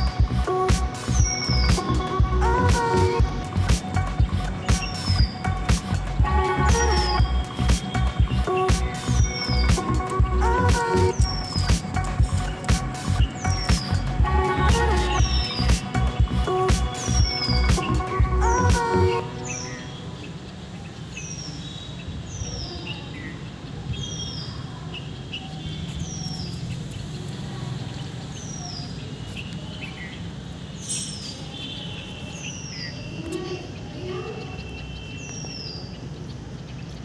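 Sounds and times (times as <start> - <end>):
low outdoor rumble: 0.0 - 19.0.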